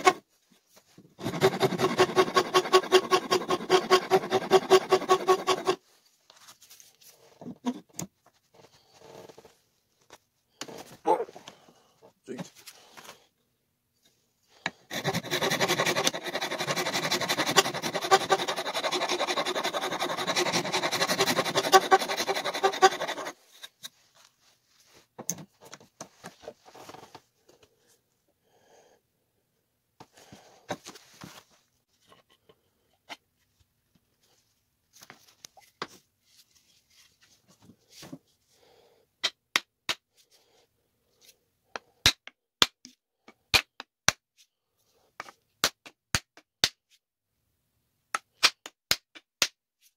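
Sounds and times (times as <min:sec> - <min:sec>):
loud scraping of wood: 0:01.2 - 0:05.8, 0:14.9 - 0:23.8.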